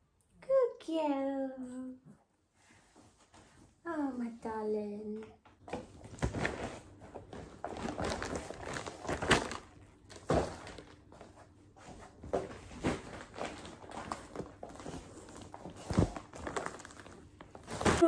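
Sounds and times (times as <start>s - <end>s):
plastic bag rustling: 6.0s - 11.0s, 11.9s - 18.0s.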